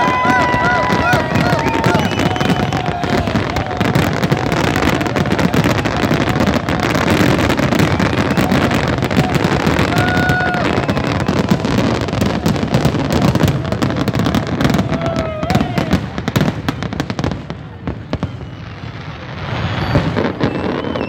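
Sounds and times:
fireworks crackling and popping: 0.0 - 21.0
whistle-like tone: 1.5 - 2.8, 18.2 - 21.0.

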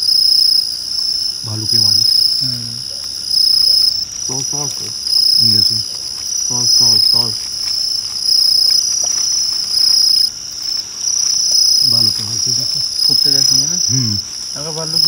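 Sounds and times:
crickets trilling: 0.0 - 15.0
low voices: 1.4 - 3.3, 3.9 - 7.6, 11.8 - 15.0.

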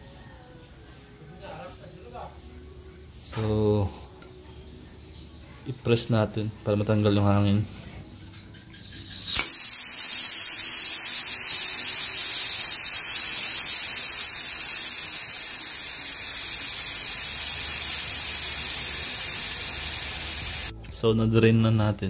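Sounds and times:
compressed air hissing: 7.7 - 20.7.

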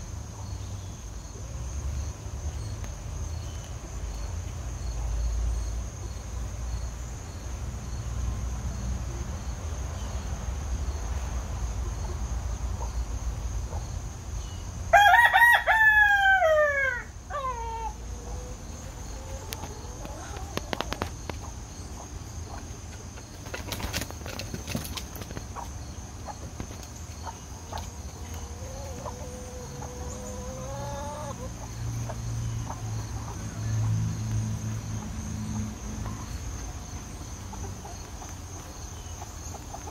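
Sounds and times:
high insect trill: 0.0 - 39.9
rooster crowing: 14.9 - 20.6, 28.4 - 31.5.

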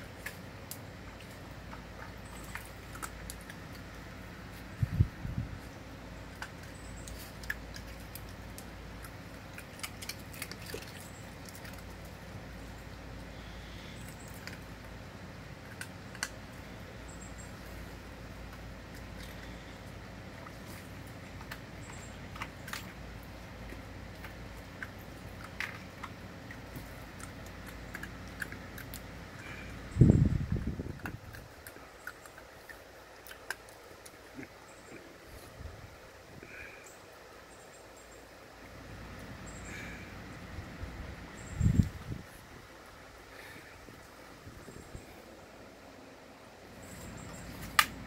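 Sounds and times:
steady low hum: 0.0 - 48.0
dog crunching ice cubes: 6.2 - 12.8, 18.3 - 29.7, 30.5 - 34.6.

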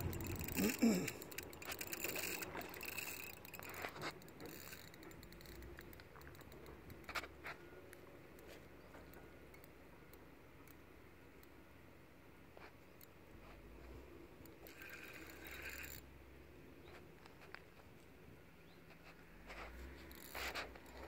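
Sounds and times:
water lapping: 0.0 - 4.8.

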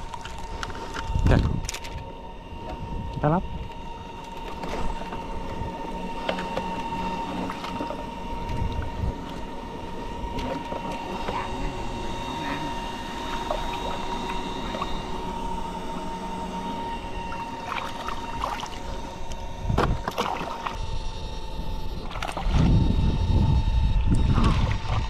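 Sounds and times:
electric motor high whine: 0.0 - 25.0
water splashing: 17.3 - 19.0, 20.0 - 20.8.

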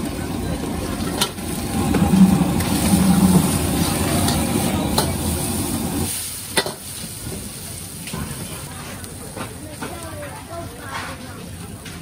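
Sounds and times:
vegetables sizzling in a wok: 0.0 - 10.8
ladle clanking on wok: 1.1 - 6.9.

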